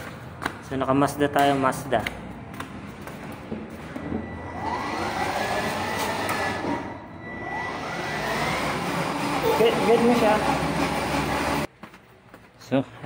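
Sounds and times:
toy car electric motor whining: 4.5 - 6.8, 7.4 - 11.7.

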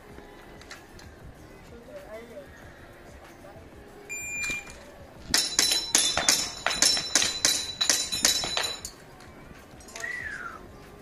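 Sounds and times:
pellets clinking on metal target: 4.5 - 9.0.

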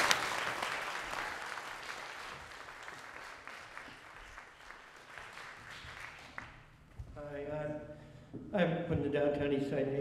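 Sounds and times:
audience clapping: 0.0 - 7.0.

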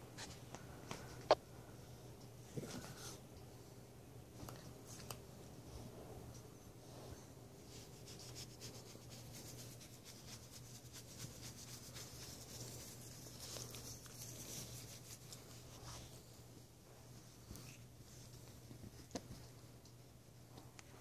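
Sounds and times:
hand scratching dog fur: 7.7 - 16.3.

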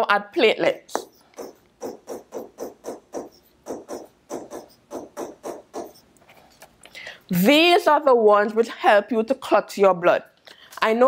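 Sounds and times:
pen scratching on paper: 0.9 - 6.1.

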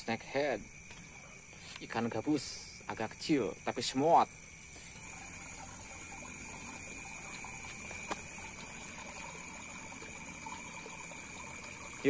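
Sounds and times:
night insects chirring: 0.0 - 12.0
water rushing in a channel: 5.0 - 12.0.

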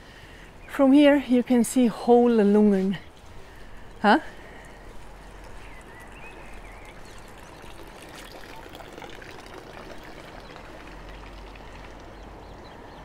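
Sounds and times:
water trickling into basin: 4.6 - 12.8.

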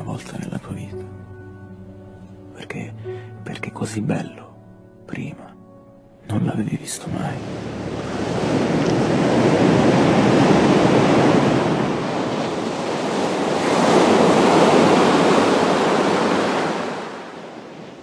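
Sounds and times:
waves breaking on beach: 7.1 - 18.0.

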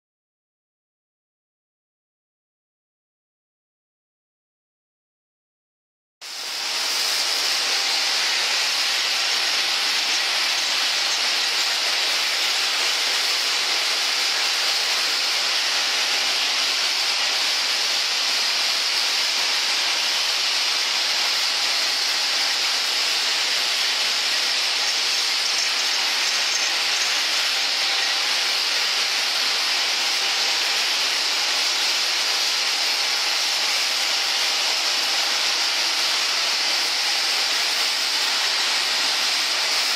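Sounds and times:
machine whirring hiss: 6.2 - 39.9.

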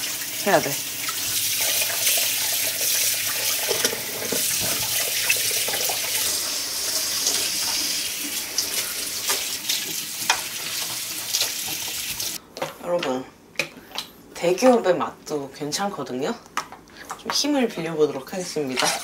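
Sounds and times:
tap water pouring into sink: 0.0 - 12.4.

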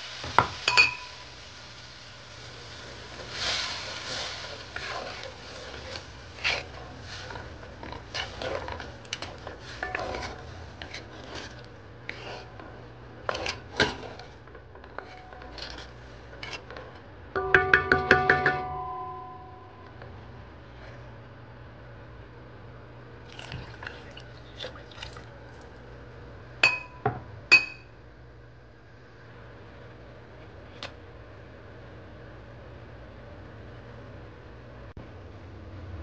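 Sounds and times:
wooden spoon stirring beans in pot: 2.5 - 18.4
spoon scraping and knocking pot: 4.8 - 12.7, 13.3 - 19.4.

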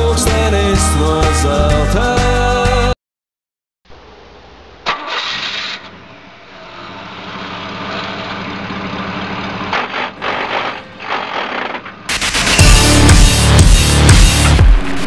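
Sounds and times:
rally car engine running: 4.8 - 15.0.

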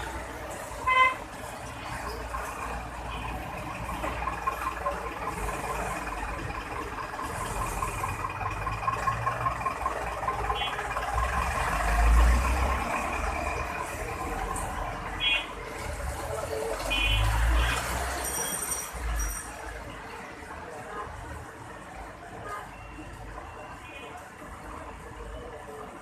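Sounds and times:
low vehicle rumble: 0.0 - 17.5
street traffic noise: 0.0 - 26.0.

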